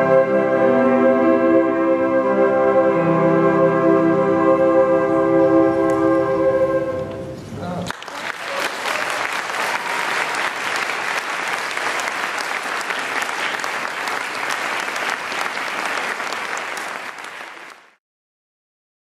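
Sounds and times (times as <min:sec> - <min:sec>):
audience applauding: 0:07.9 - 0:18.0.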